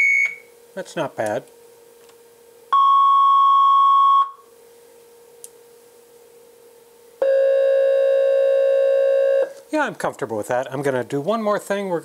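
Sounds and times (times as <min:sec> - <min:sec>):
steady high oscillator tone: 0:00.0 - 0:00.5, 0:02.7 - 0:04.4, 0:07.2 - 0:09.5
lower bright oscillator tone: 0:07.2 - 0:09.5.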